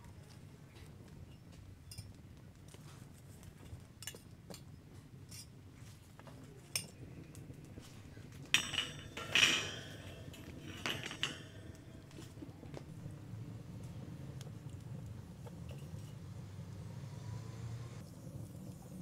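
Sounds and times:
wood fire crackling and popping: 0.8 - 16.4
metal grill grate clattering: 6.7 - 13.2.

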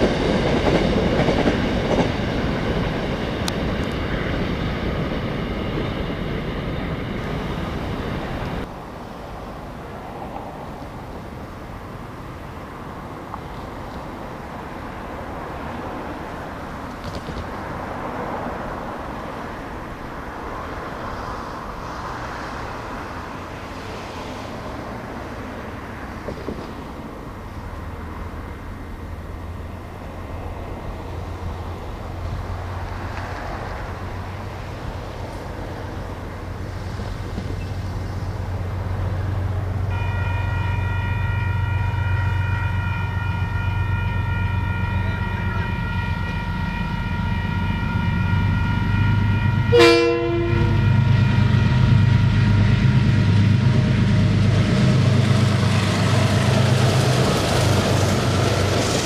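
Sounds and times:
locomotive engine drone: 0.0 - 59.0
multi-tone locomotive horn: 39.8 - 54.0.

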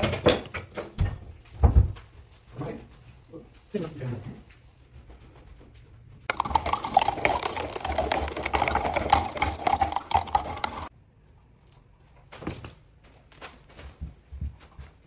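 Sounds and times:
stick stirring resin in metal tin: 6.3 - 10.9.

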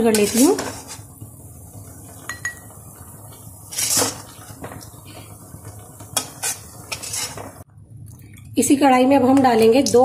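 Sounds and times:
metal spatula scraping a pan: 0.0 - 1.1, 3.6 - 4.7, 6.2 - 7.6.

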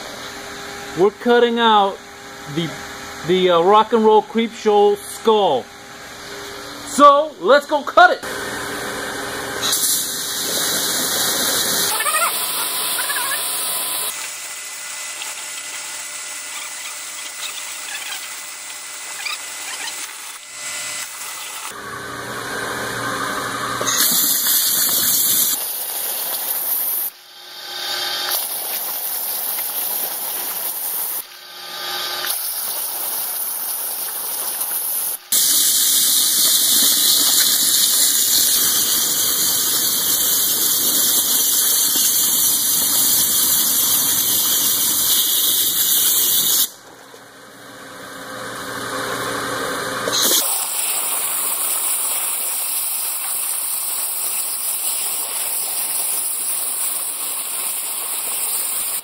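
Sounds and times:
waterjet stream hissing: 8.3 - 21.8, 23.4 - 46.8, 50.0 - 59.0
water spraying and splashing: 9.6 - 14.2, 23.8 - 27.1, 28.2 - 31.3, 32.2 - 46.7, 50.1 - 59.0.

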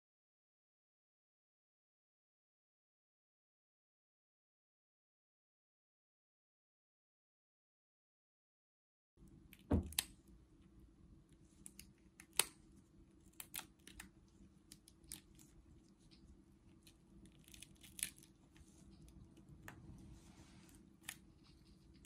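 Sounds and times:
crayfish shell cracking: 11.6 - 12.6, 13.2 - 15.6, 16.8 - 18.4.

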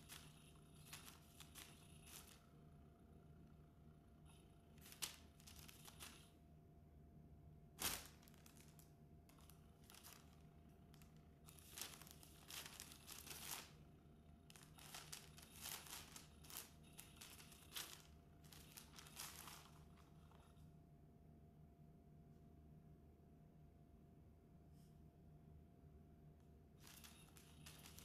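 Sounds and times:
fabric crinkling and rustling: 0.0 - 2.4, 4.8 - 6.3, 7.8 - 13.8, 14.5 - 20.5, 26.8 - 28.0.

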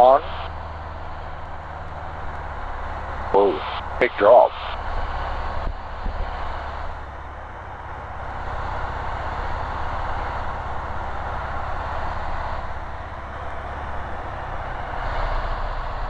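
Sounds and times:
aircraft engine and propeller droning: 0.0 - 16.0.

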